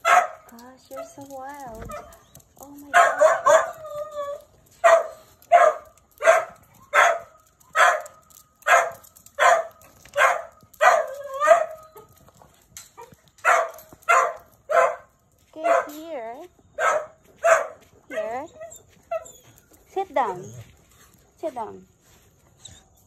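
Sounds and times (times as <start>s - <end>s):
dog barking: 0.0s - 0.5s, 2.9s - 3.8s, 4.8s - 8.1s, 8.7s - 11.8s, 13.4s - 16.0s, 16.8s - 18.4s
dog whining: 18.2s - 20.7s.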